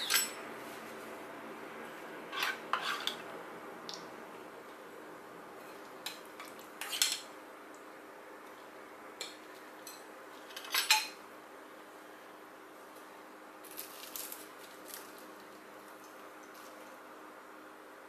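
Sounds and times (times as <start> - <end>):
spoons clinking on ceramic bowls: 0.0 - 0.4.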